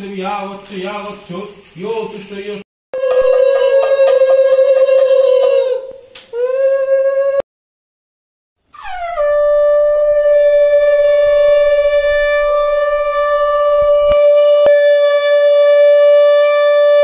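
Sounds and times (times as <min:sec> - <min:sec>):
conch shell blown: 0:03.0 - 0:05.8, 0:08.8 - 0:17.0.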